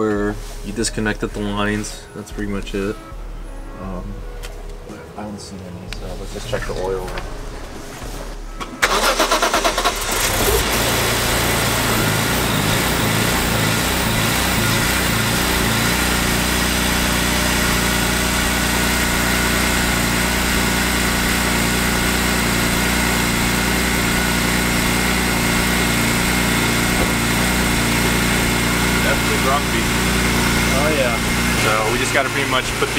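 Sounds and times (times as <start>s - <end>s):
car engine starting and idling: 5.9s - 32.9s
starter motor cranking: 8.7s - 32.9s.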